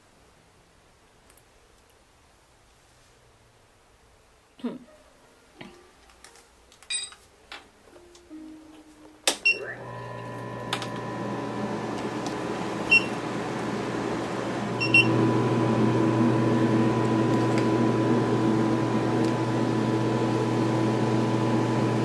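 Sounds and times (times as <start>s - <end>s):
electrical hum and fan noise: 7.8s - 22.0s.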